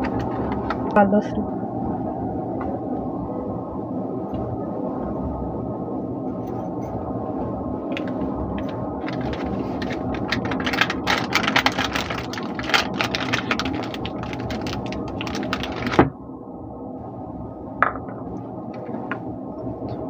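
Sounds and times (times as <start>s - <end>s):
paper wrapper crinkling: 8.0s - 16.1s.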